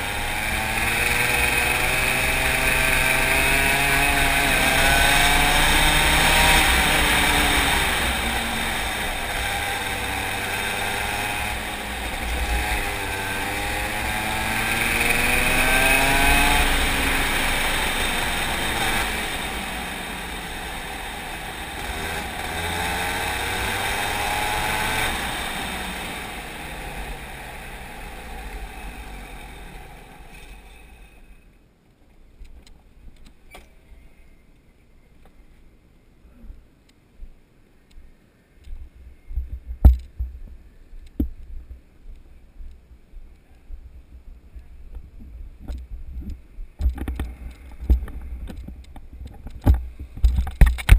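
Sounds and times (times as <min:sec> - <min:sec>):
kart engine revving: 0:00.0 - 0:31.1
faint clicks: 0:36.8 - 0:40.2.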